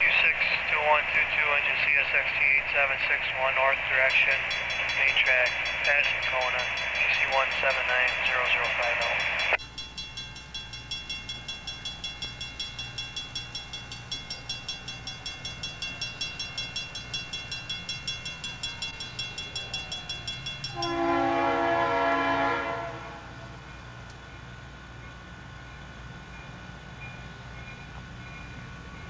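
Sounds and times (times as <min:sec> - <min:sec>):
crossing warning bell ringing: 0:00.0 - 0:29.0
locomotive horn: 0:20.7 - 0:23.6.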